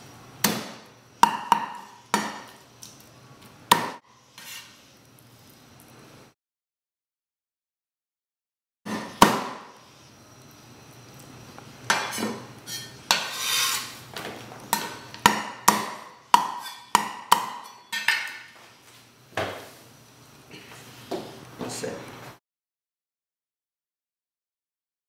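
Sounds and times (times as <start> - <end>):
cleaver chopping on wooden block: 3.7 - 4.0, 14.7 - 17.6.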